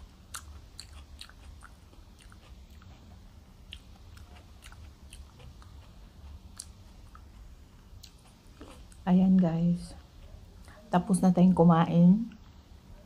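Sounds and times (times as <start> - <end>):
person chewing food: 0.0 - 9.1
faint low hum: 0.0 - 13.0.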